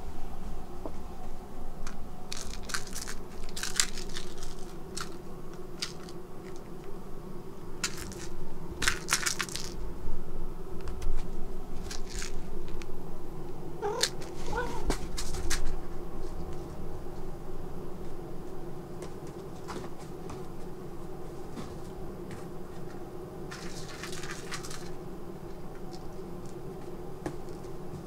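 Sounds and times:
steady low hum: 0.0 - 28.0
crinkly rustles and scratches: 2.3 - 7.0, 7.8 - 9.8, 10.8 - 12.9, 13.8 - 17.3, 18.0 - 28.0.

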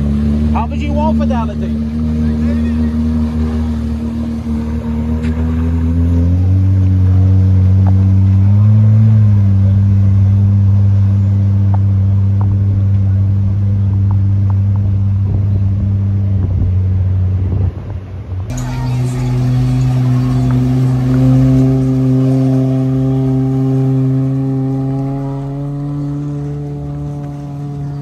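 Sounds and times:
watercraft engine running: 0.0 - 7.8, 18.5 - 28.0.

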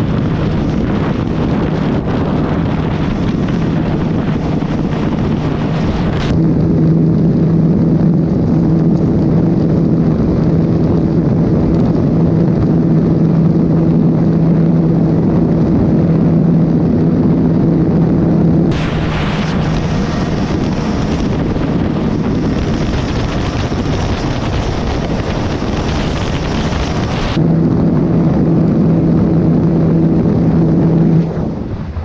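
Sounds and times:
wind rushing over microphone: 0.0 - 32.0
motorcycle engine at high revs: 18.4 - 27.4.

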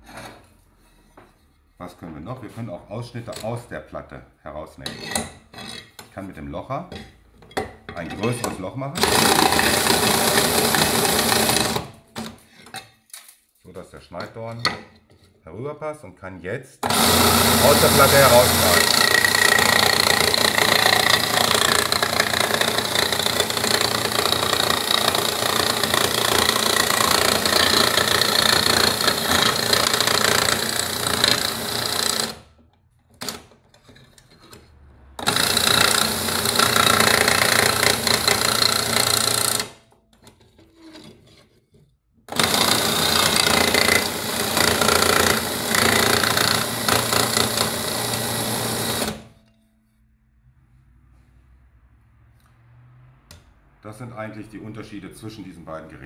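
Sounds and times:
slate-cutting machine chattering: 16.8 - 32.3.

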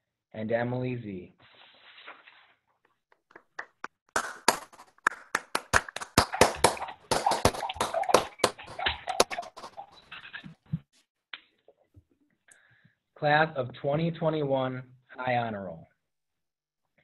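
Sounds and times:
hands clapping: 3.1 - 10.0.

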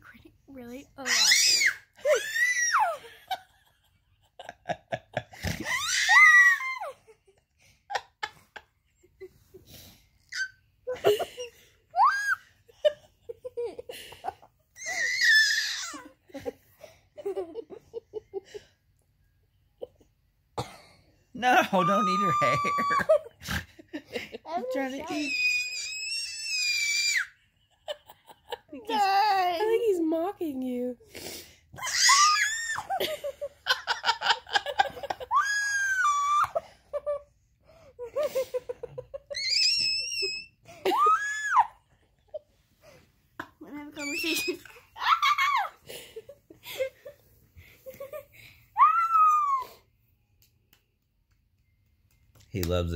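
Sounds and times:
baby squealing: 25.1 - 27.3.

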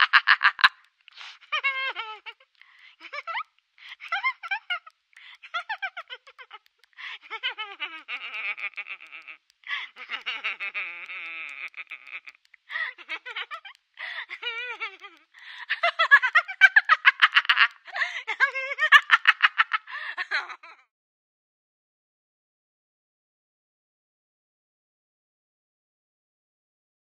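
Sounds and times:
woman laughing over the phone: 0.0 - 20.9.

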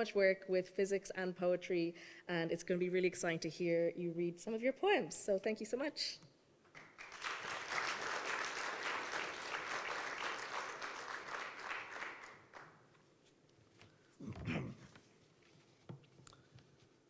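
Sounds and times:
audience applause: 6.8 - 12.8.

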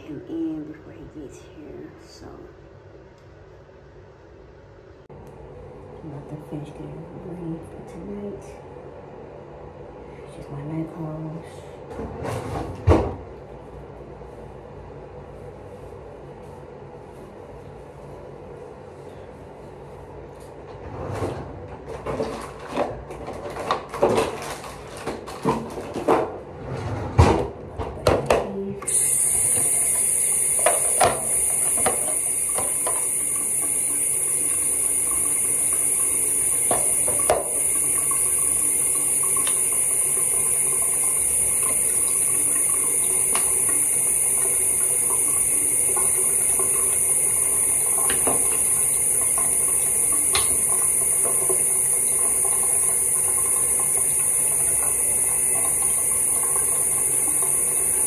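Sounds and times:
water running from tap: 28.9 - 58.0.

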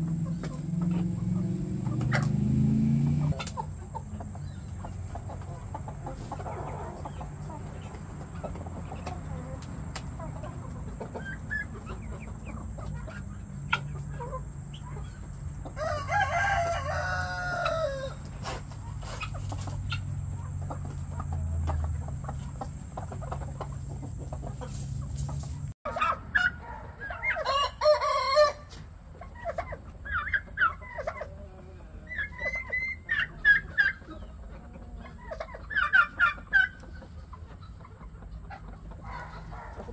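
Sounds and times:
chickens clucking: 0.0 - 39.9
rooster crowing: 15.7 - 18.2, 26.6 - 28.7.

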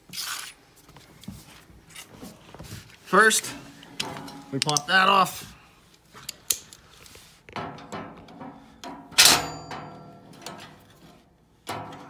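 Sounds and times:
metallic clank: 7.5 - 11.0, 11.7 - 12.0.

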